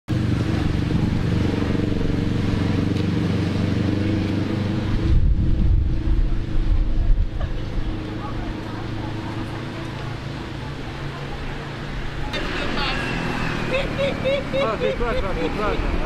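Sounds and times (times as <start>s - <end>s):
heavy low rumble: 0.1s - 13.0s
vehicle engine running: 0.1s - 16.0s.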